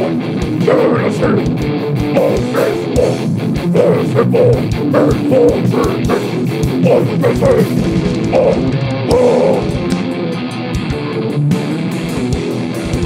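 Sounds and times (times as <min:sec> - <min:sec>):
vocalist growling: 0:00.0 - 0:10.0
distorted electric guitars: 0:00.0 - 0:13.0
drum kit with rapid kick drum: 0:00.0 - 0:13.0.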